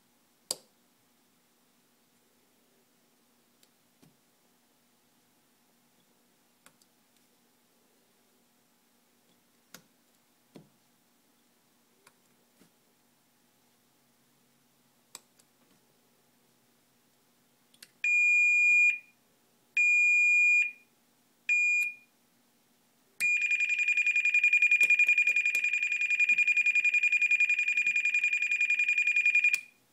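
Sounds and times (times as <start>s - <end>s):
high-pitched alarm beeps: 23.2s - 29.7s.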